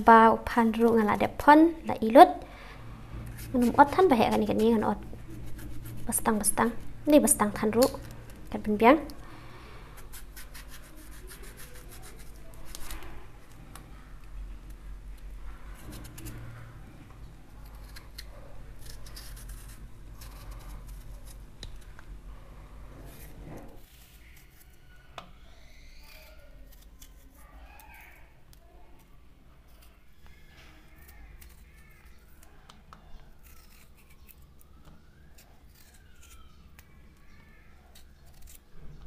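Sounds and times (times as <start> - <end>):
knife scraping vegetable skin: 3.3 - 8.3, 9.8 - 13.2, 15.8 - 16.6, 17.6 - 21.5, 23.0 - 25.0, 25.6 - 28.3, 29.7 - 37.0, 37.8 - 38.8.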